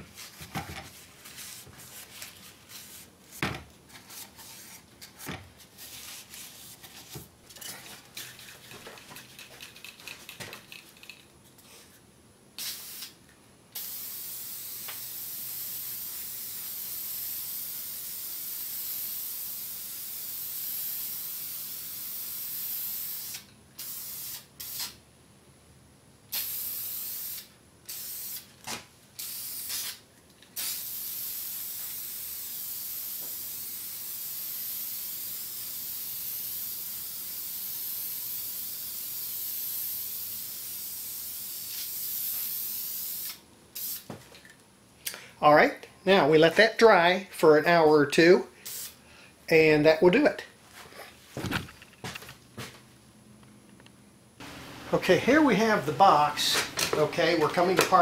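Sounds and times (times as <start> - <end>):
aerosol spray can hissing: 12.6 - 13.2, 13.8 - 25.0, 26.3 - 28.5, 29.2 - 30.0, 30.6 - 44.1, 48.6 - 49.0.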